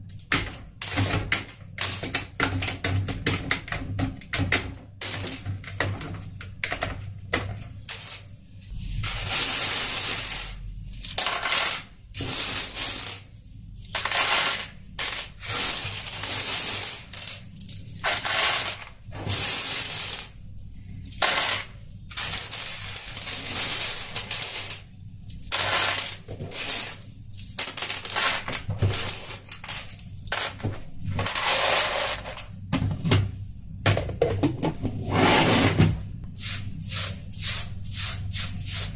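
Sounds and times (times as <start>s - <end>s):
plastic keycaps clattering into bowl: 7.9s - 8.2s, 13.9s - 20.3s, 25.4s - 32.4s.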